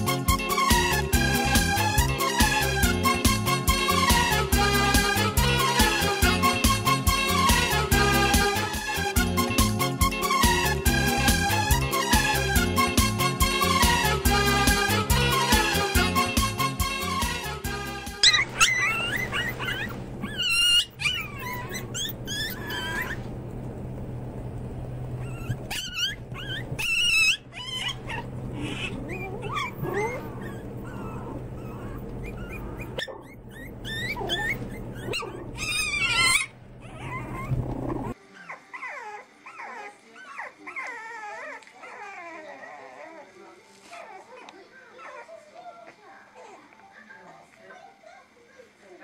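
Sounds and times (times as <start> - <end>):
puppies yipping and barking: 18.0 - 24.3, 25.0 - 48.4
puppies whimpering and squeaking: 18.1 - 24.3, 25.0 - 48.8
steady low hum: 19.2 - 35.7.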